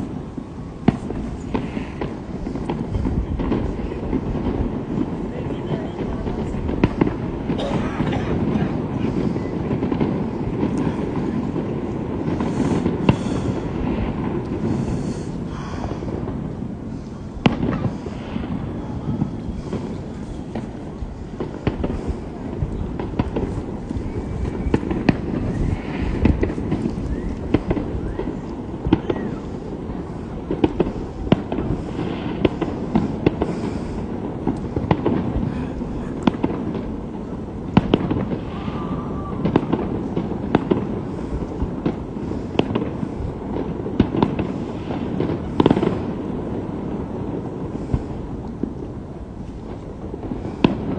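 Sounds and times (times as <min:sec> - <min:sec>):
steady low rumble: 0:00.0 - 0:38.6
fireworks bangs and cracks: 0:00.0 - 0:50.9.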